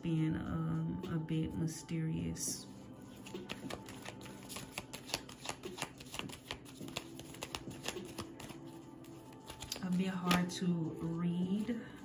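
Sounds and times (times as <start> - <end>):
cards being shuffled: 3.1 - 11.7.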